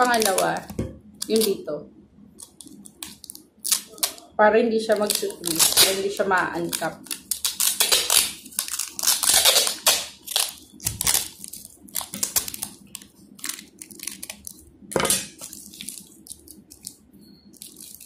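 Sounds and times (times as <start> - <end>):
packing tape pulled off roll: 6.7 - 14.5.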